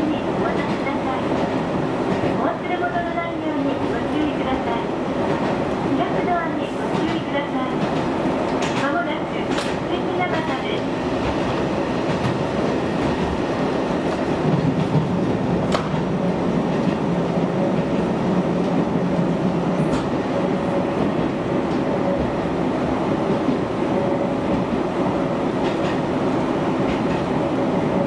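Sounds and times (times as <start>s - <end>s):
railcar wheels and engine rumble: 0.0s - 28.0s.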